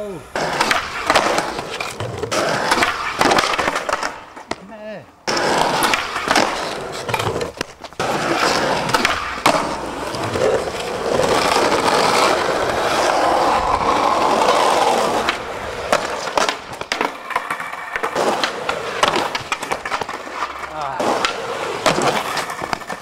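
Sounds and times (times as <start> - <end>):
skateboard wheels rolling on asphalt: 0.0 - 23.0
skater falling: 0.0 - 23.0
skateboard clacking on ground: 0.3 - 23.0
loose skateboard clattering: 15.2 - 23.0.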